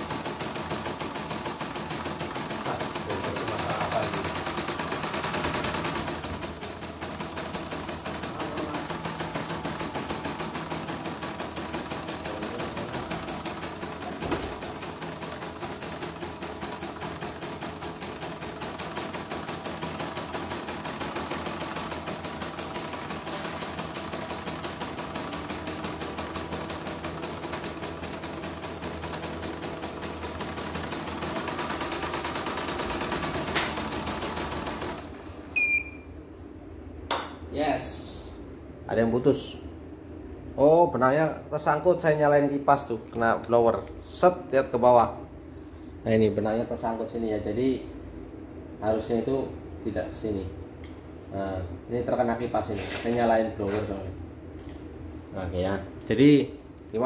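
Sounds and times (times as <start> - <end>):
embroidery machine stitching: 0.0 - 35.2.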